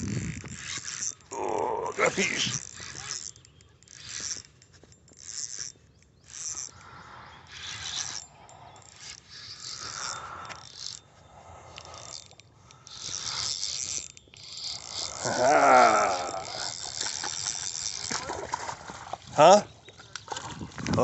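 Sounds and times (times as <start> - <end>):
fishing reel and rod scraping: 0.0 - 21.0.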